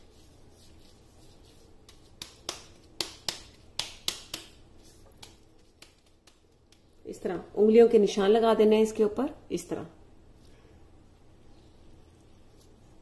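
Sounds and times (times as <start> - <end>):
gloved hands slapping meat: 1.3 - 7.0.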